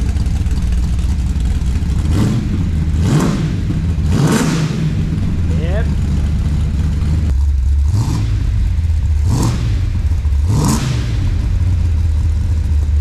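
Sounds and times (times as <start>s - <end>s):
car engine idling: 0.0s - 13.0s
engine revving blips: 2.0s - 11.9s.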